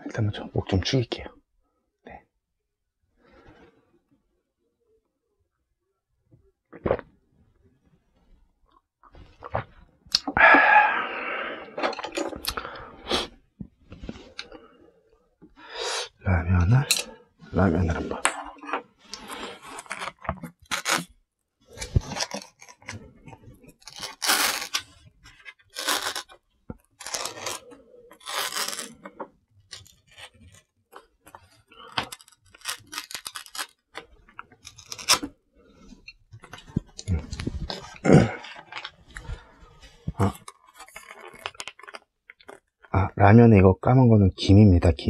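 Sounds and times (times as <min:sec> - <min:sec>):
crisp sheets tearing and crinkling: 0:19.0 - 0:35.9, 0:40.2 - 0:42.7
paper lid tearing: 0:19.1 - 0:23.0, 0:23.7 - 0:25.0, 0:25.6 - 0:29.1, 0:31.3 - 0:35.3.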